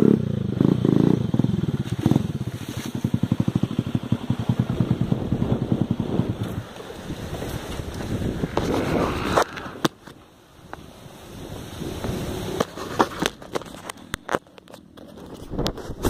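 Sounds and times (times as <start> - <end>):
sharp knocks and scrapes: 12.5 - 16.0.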